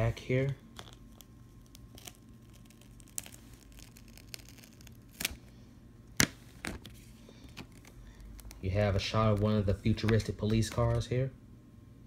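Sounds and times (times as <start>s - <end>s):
paper handling: 6.2s - 11.1s.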